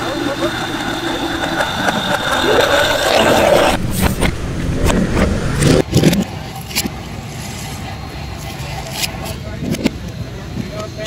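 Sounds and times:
blender running backwards: 0:00.0 - 0:08.6.

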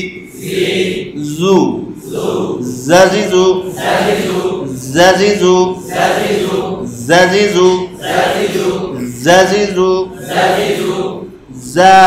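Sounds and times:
man chanting melodic recitation: 0:01.0 - 0:02.0, 0:02.6 - 0:08.0, 0:08.8 - 0:10.2, 0:11.5 - 0:12.0.

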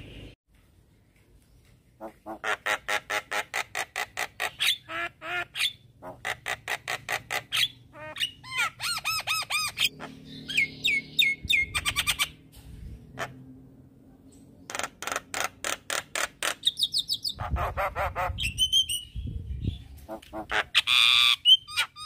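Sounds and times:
bird singing: 0:07.4 - 0:12.4, 0:16.5 - 0:17.5.

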